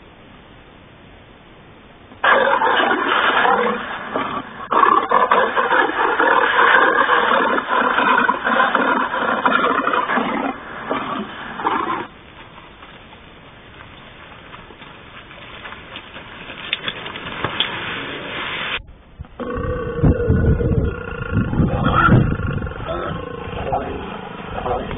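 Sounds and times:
lion growls through loudspeaker: 19.4s - 24.9s.

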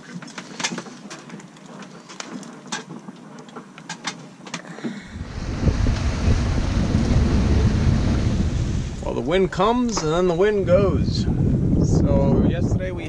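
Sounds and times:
sea noise: 4.7s - 10.4s
wind on microphone: 4.9s - 13.0s.

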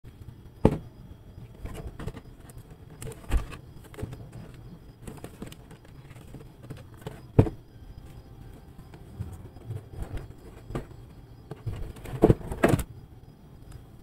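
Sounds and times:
sharp knocks on cardboard box: 0.6s - 0.9s, 7.3s - 7.6s.

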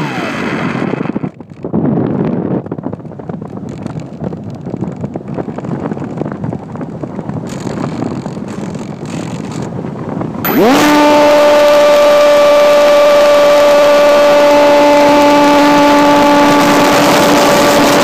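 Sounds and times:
propeller motor whine: 0.0s - 1.3s, 10.3s - 18.0s
wind rushing over microphone: 0.0s - 18.0s.

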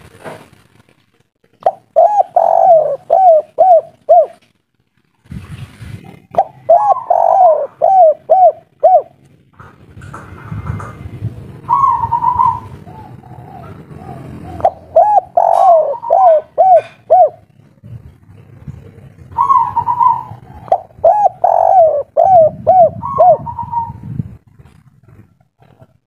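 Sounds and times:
dove cooing: 1.6s - 4.5s, 6.1s - 9.2s, 11.6s - 26.0s.

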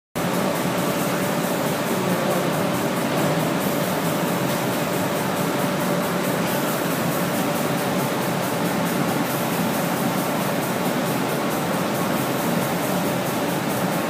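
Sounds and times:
machine hum: 0.2s - 14.0s.

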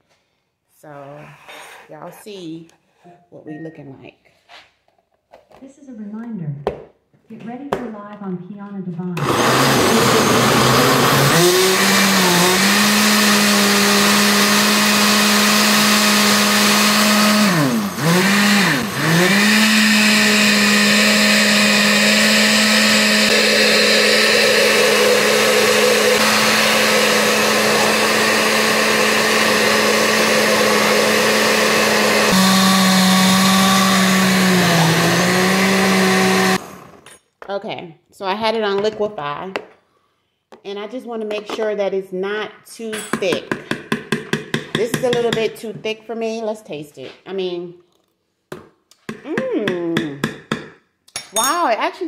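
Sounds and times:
blender motor whine: 9.2s - 37.0s.

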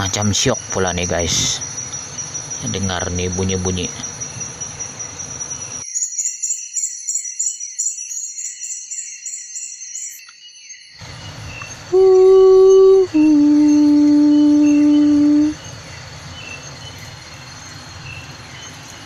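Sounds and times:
crickets trilling: 0.0s - 19.0s
high pulsing insect call: 0.0s - 19.0s
held musical note: 11.9s - 15.6s.

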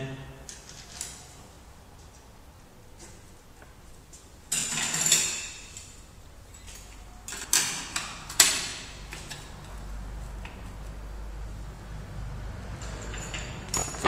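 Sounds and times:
scraping metal clatter: 12.7s - 14.0s.

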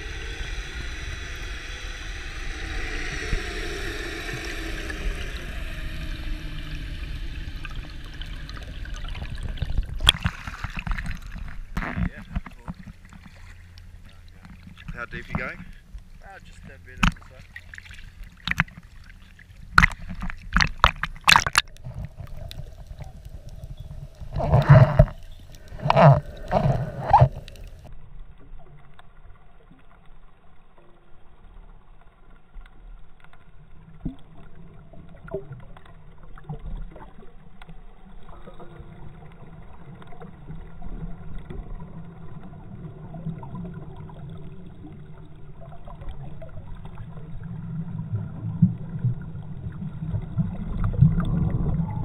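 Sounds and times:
sea water splashing against camera: 0.0s - 27.9s
low underwater rumble: 0.0s - 52.0s.

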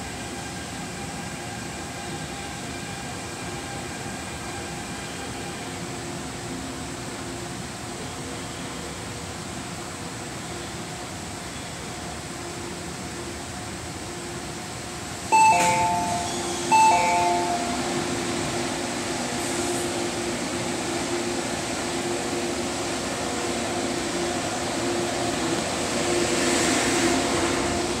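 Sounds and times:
two-note door chime: 15.3s - 18.2s.

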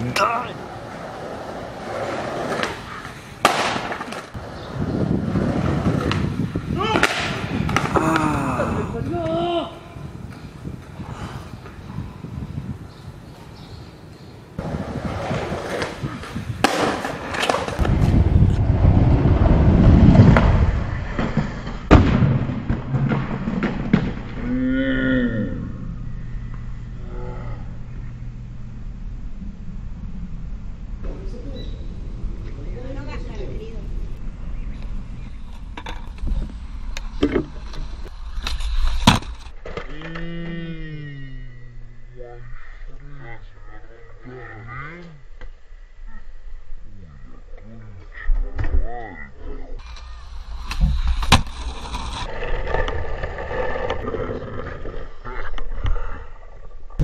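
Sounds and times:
skateboard wheels rumbling on paving: 0.4s - 9.1s, 14.6s - 24.6s, 49.8s - 57.0s.

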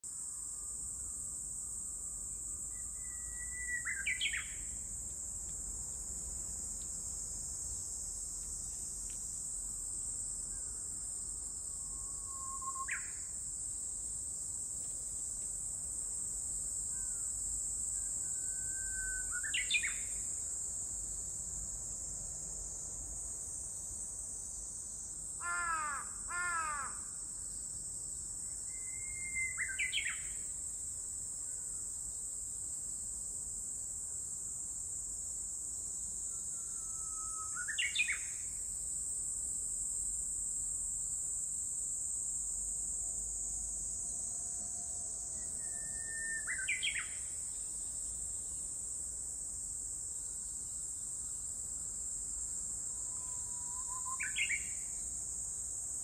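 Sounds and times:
high drone of insects: 0.1s - 56.0s
bird singing whistled song: 2.7s - 4.6s, 11.9s - 13.2s, 18.0s - 20.0s, 28.7s - 30.3s, 36.6s - 38.2s, 45.4s - 47.2s, 53.6s - 54.7s.

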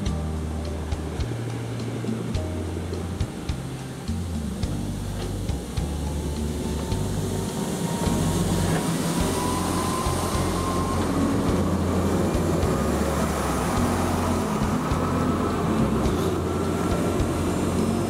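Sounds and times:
faint whine: 0.0s - 18.0s.

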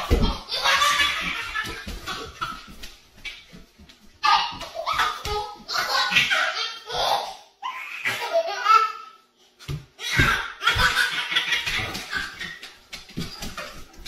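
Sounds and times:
laughter: 10.7s - 12.5s.

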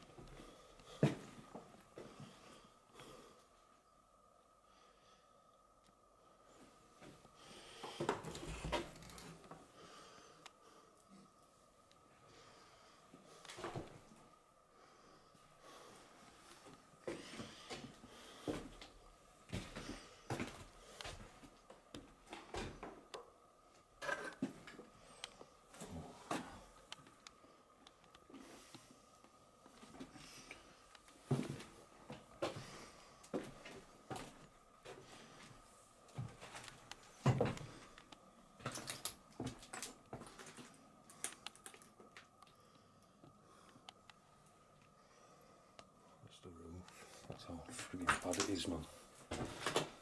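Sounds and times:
faint steady hum: 0.0s - 50.0s
footsteps on broken wooden floor: 36.1s - 38.0s.

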